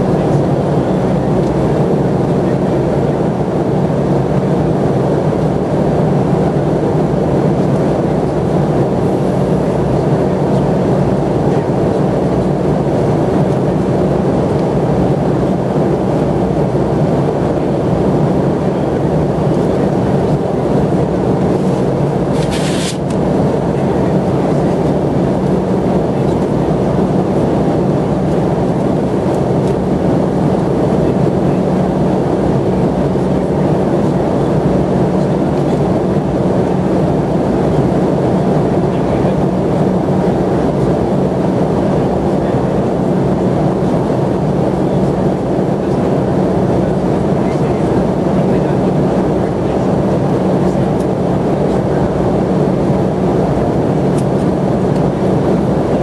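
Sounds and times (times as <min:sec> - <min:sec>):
airliner engines droning: 0:00.0 - 0:56.0
brief hiss: 0:22.4 - 0:23.0.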